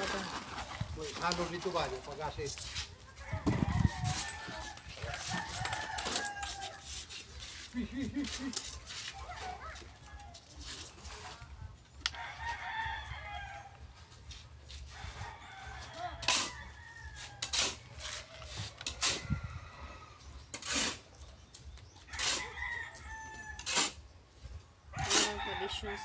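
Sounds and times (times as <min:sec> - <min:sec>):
rooster crowing: 0:03.2 - 0:07.0, 0:12.1 - 0:13.8, 0:14.9 - 0:20.2, 0:22.1 - 0:23.7, 0:24.9 - 0:26.0.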